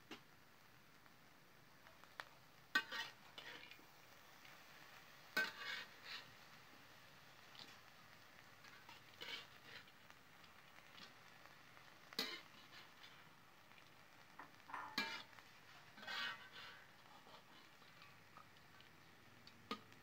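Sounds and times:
metal spatula scraping a wok: 0:02.1 - 0:03.8, 0:05.3 - 0:06.5, 0:08.6 - 0:10.0, 0:12.1 - 0:13.3, 0:14.3 - 0:18.2.

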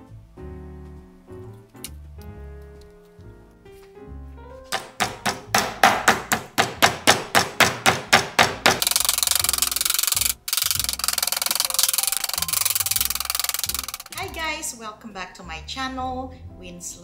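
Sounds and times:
mallet pounding meat on wood: 0:04.7 - 0:08.9.

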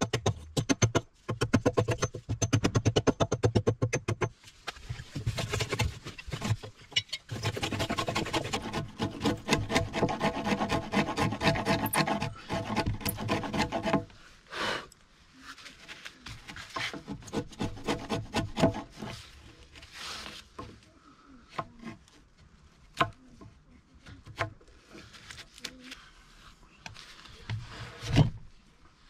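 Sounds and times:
chisel scraping wood: 0:05.0 - 0:14.2, 0:16.5 - 0:20.7.

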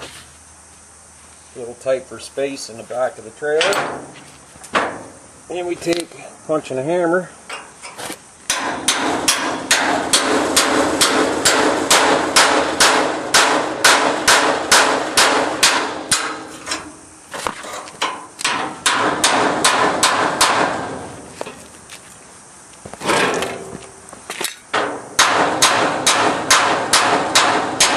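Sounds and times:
hammer striking steel punch: 0:08.5 - 0:16.5, 0:18.4 - 0:20.9, 0:24.8 - 0:27.9.

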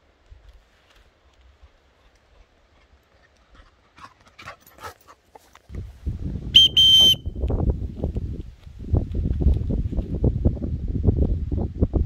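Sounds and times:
shrill dog whistle blasts: 0:06.6 - 0:07.4.

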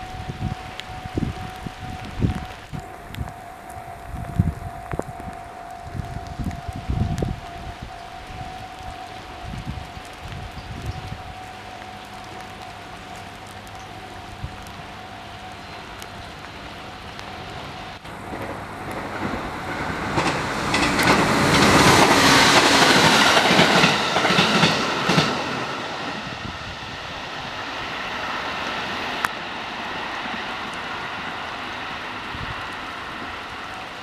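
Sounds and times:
electric train passing: 0:00.0 - 0:34.0
wheels clicking over rail joints: 0:08.7 - 0:26.1.

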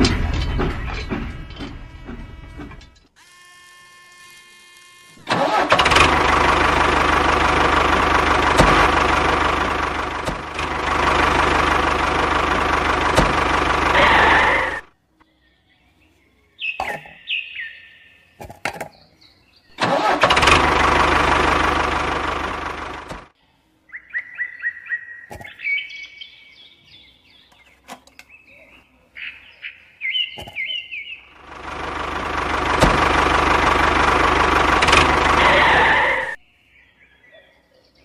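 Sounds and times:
short knocks with squeaks: 0:00.0 - 0:03.1
tractor engine running: 0:00.0 - 0:03.2, 0:05.1 - 0:14.9, 0:19.8 - 0:23.3, 0:31.3 - 0:36.4.

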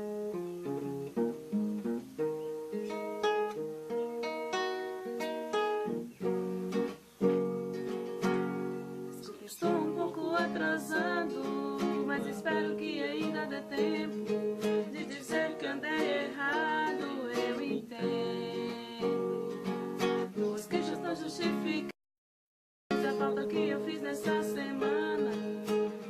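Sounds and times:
acoustic guitar strummed: 0:00.0 - 0:22.0, 0:22.9 - 0:26.0
man and woman singing: 0:09.2 - 0:22.0, 0:22.9 - 0:26.0.

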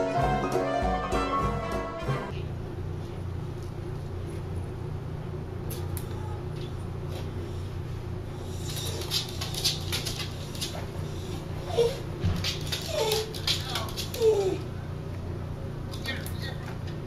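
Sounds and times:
small dog clicking and snuffling: 0:08.5 - 0:14.6.

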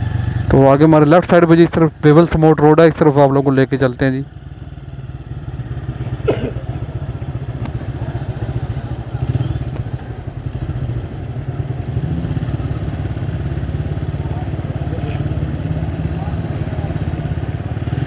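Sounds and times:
vehicle engine running: 0:00.0 - 0:18.0.

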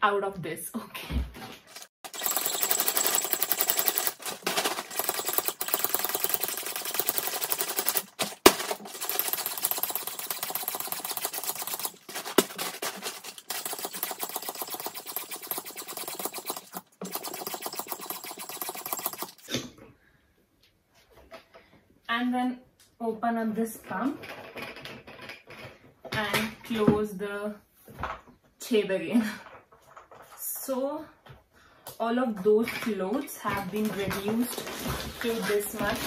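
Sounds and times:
hand pump rattling buzz: 0:02.0 - 0:19.5.

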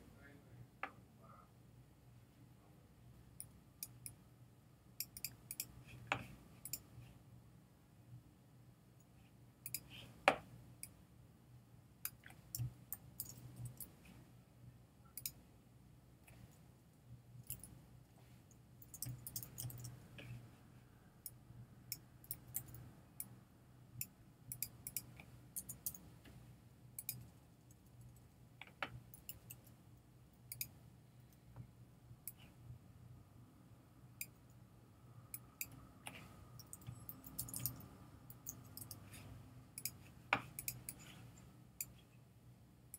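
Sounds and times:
faint low hum: 0:00.0 - 0:42.9
computer mouse clicks: 0:05.0 - 0:06.9, 0:09.6 - 0:11.0, 0:12.0 - 0:14.0, 0:15.2 - 0:15.4, 0:18.8 - 0:20.4, 0:24.0 - 0:26.4, 0:27.0 - 0:27.3, 0:28.6 - 0:29.7, 0:30.5 - 0:30.8, 0:35.3 - 0:41.2.

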